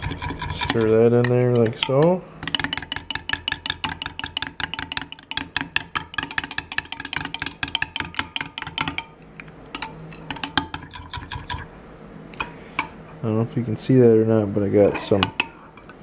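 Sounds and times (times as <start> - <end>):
low steady hum: 0.0 - 16.0
knife tapping glass: 0.7 - 9.2.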